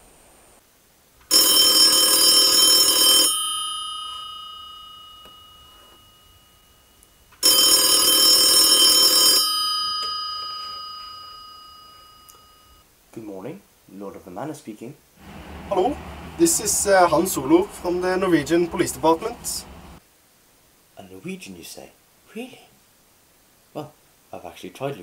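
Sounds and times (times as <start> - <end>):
telephone bell ringing: 1.3 - 12.8.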